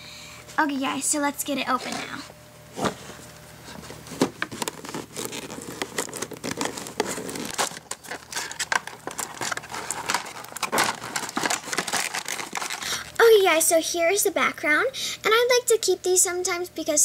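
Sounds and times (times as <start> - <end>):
cardboard and plastic crinkling: 2.8 - 13.2.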